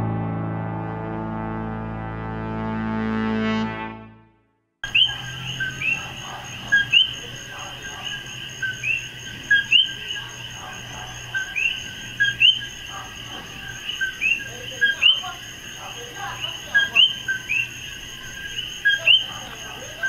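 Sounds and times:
frogs calling two-note chirps: 4.8 - 7.4
high insect whine: 4.8 - 20.0.

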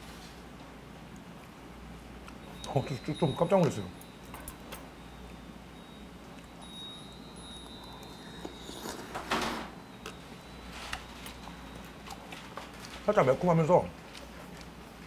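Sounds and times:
person slurping soup: 7.9 - 9.3.

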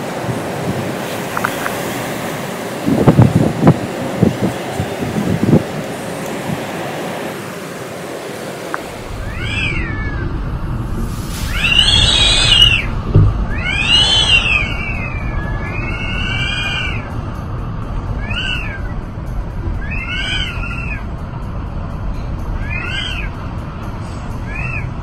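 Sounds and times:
wind and rain rushing: 0.0 - 25.0
high wailing tones: 8.8 - 25.0.

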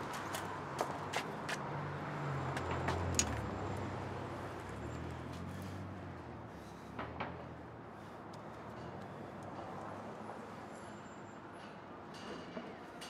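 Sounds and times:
vehicle engine rumble: 0.0 - 9.9
background traffic: 0.0 - 13.0.

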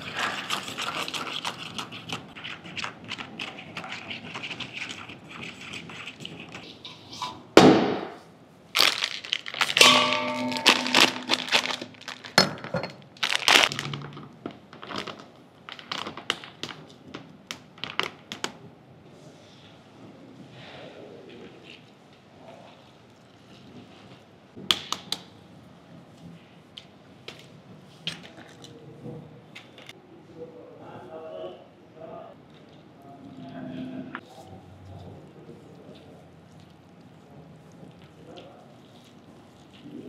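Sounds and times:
plastic bag crinkling: 8.7 - 18.3
metal spoon stirring liquid: 9.8 - 12.9.

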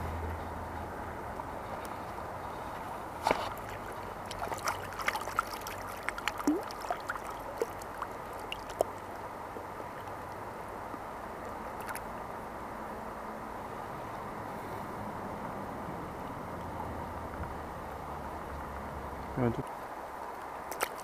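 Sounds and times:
shallow river flowing over stones: 0.1 - 14.0, 16.0 - 21.0
small water splashes: 3.2 - 10.4, 11.7 - 12.1, 19.6 - 21.0.

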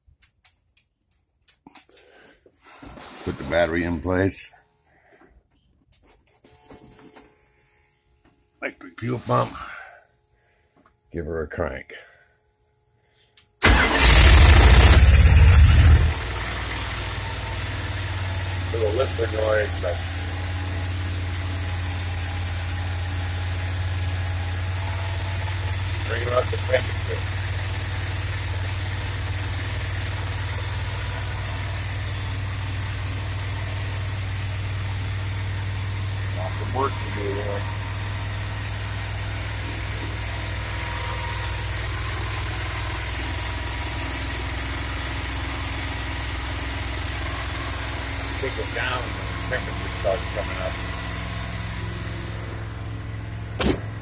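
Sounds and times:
engine idling: 13.6 - 54.0.

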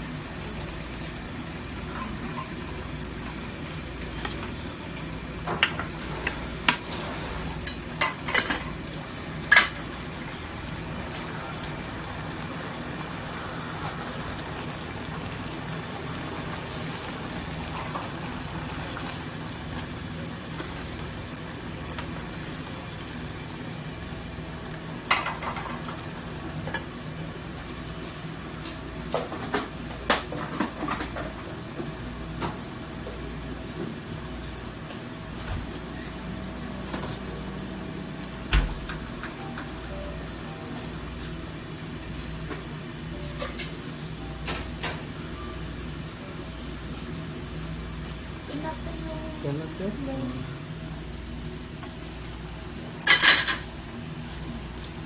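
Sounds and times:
stew bubbling in pots: 0.0 - 32.0
low burner hum: 0.0 - 55.0.

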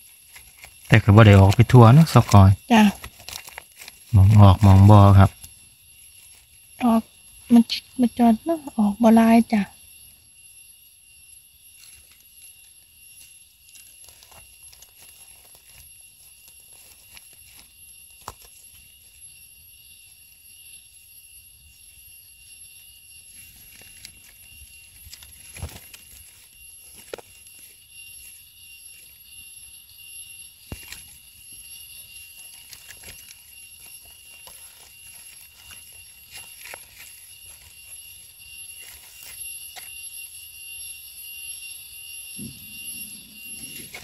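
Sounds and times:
rustling in leaf litter: 0.0 - 5.5, 13.2 - 19.1, 23.3 - 29.2, 30.7 - 39.9
high-pitched insect drone: 0.0 - 44.0.

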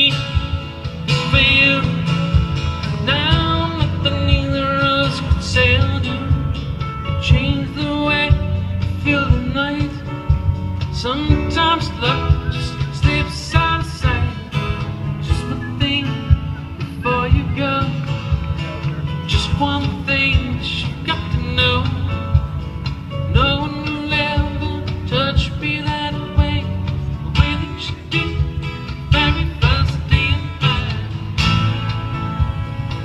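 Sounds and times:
acoustic guitar: 0.0 - 33.0
bass: 0.0 - 33.0
percussion: 0.0 - 33.0
person singing: 10.9 - 22.6, 23.2 - 31.0.

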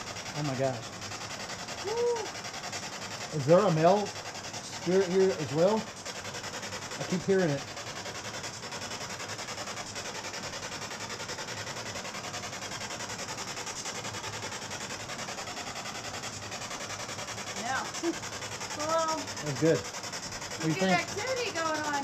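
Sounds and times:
pulsing radio static: 0.0 - 22.0.

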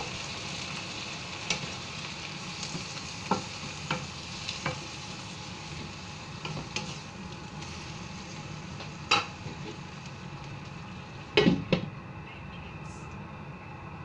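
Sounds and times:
curry sizzling in a pan: 0.0 - 11.8.

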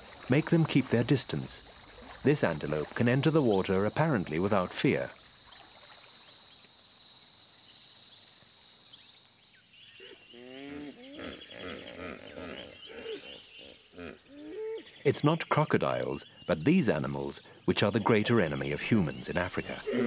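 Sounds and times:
bird chirps: 7.7 - 20.0.

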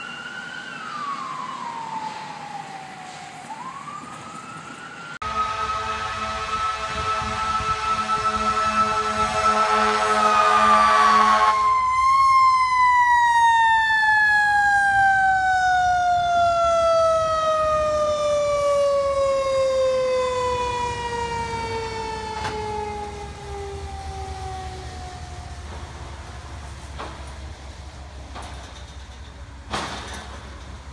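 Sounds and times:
fire truck siren winding down: 0.0 - 27.9
loud horn blast: 5.2 - 11.7.

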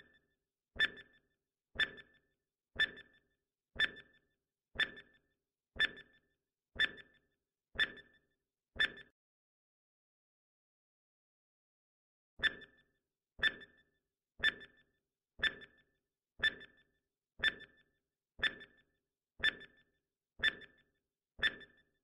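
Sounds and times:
countdown timer ticks: 0.8 - 1.2, 1.8 - 2.2, 2.8 - 3.2, 3.8 - 4.2, 4.8 - 5.2, 5.8 - 6.2, 6.8 - 7.2, 7.8 - 8.2, 8.8 - 9.1, 14.4 - 14.8, 15.4 - 15.8, 16.4 - 21.8.

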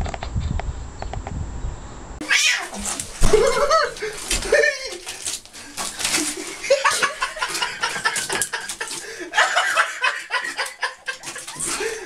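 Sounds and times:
people laughing: 3.2 - 5.2, 6.0 - 12.0.

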